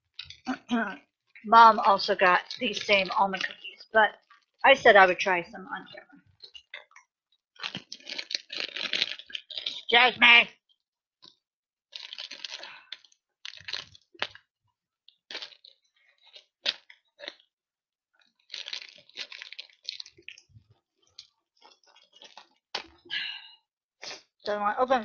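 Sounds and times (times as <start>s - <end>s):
person chewing crunchy cookie: 0.1s - 0.6s, 2.2s - 4.6s, 6.1s - 9.9s, 11.2s - 17.6s, 18.2s - 24.4s.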